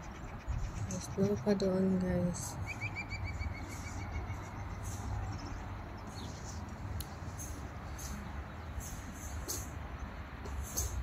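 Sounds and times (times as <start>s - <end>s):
bird trilling: 2.6s - 6.6s
high bird chirps: 2.6s - 6.6s.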